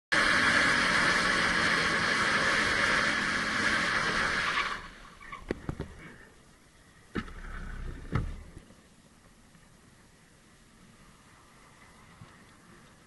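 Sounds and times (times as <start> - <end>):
wind and motorcycle road noise: 0.2 - 6.4, 7.0 - 13.0.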